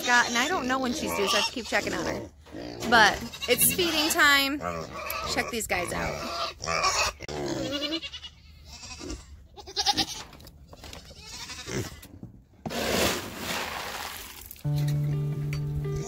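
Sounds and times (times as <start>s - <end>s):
goats bleating: 2.9s - 12.0s
scoop digging into feed pellets: 12.7s - 14.6s.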